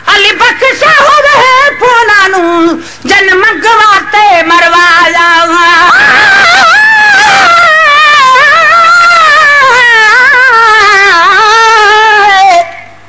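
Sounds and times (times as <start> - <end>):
person singing a long ornamented note: 0.3 - 12.8.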